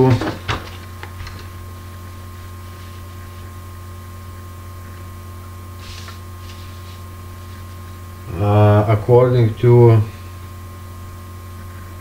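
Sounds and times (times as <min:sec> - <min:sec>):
low electrical hum: 0:00.0 - 0:12.0
faint rustle: 0:05.8 - 0:08.0.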